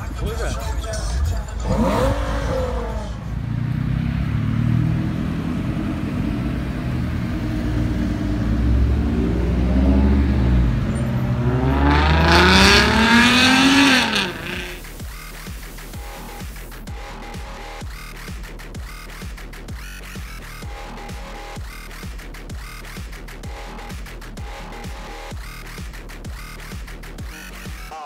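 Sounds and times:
car engine revving: 0.0s - 27.8s
car engine passing: 0.7s - 19.7s.

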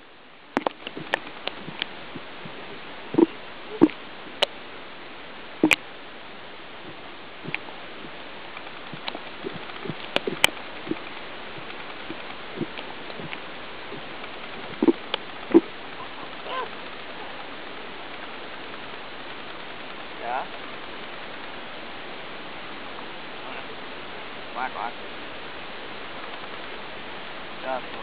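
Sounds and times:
sharp clicks: 6.9s - 15.7s.

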